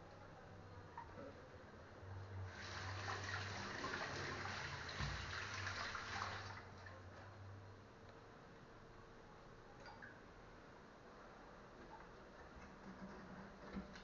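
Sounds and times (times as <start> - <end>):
tap water running: 2.5 - 6.7.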